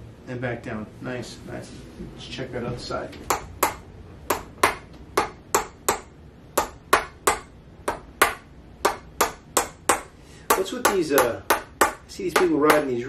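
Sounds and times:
mallet tapping: 3.3 - 13.0.

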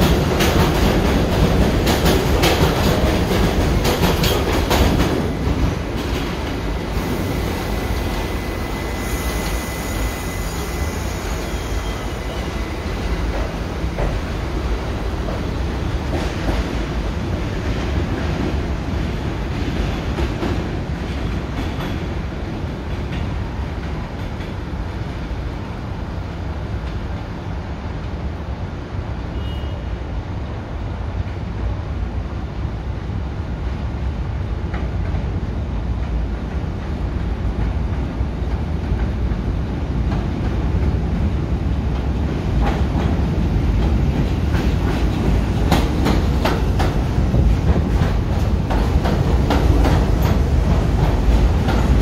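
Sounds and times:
train wheels clacking on rail joints: 0.0 - 6.6, 12.3 - 14.4, 41.9 - 52.0
subway train wheels rumbling: 0.0 - 52.0.

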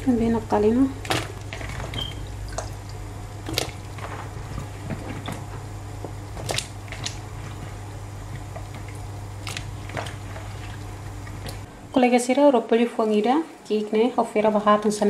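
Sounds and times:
low hum: 0.0 - 12.4
simmering water pops: 1.0 - 11.7.

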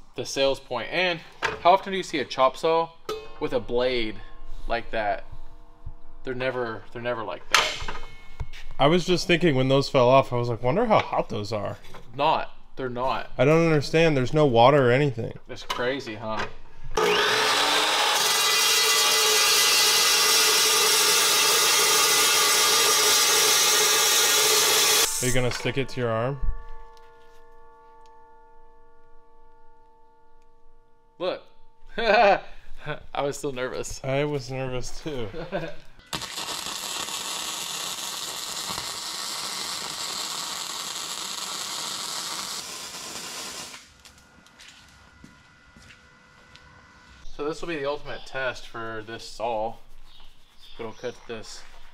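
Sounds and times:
chop saw cutting metal: 17.0 - 25.2
welding arc crackling hiss: 19.5 - 25.5, 36.1 - 44.3.

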